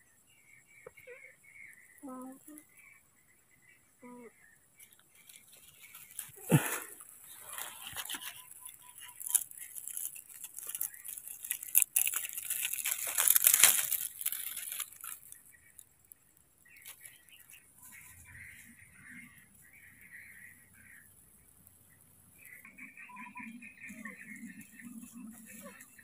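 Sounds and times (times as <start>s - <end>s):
dry leaves rustling and crackling: 4.8s - 22.6s, 23.8s - 26.0s.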